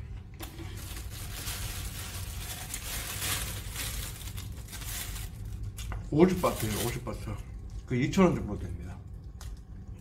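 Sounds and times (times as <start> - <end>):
steady low hum: 0.0 - 10.0
plastic container crinkling: 0.4 - 7.1.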